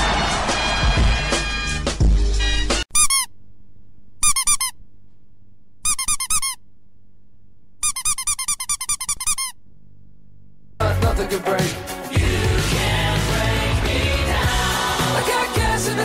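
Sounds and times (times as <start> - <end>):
rapid high-pitched squeaks: 2.9 - 3.3, 4.2 - 4.8, 5.8 - 6.6, 7.8 - 9.6.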